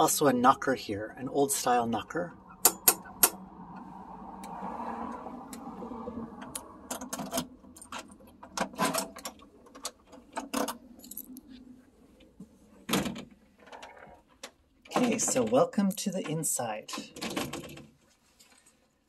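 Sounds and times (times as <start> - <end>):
keys jingling: 10.5 - 11.5
key turning in door lock: 17.0 - 17.9.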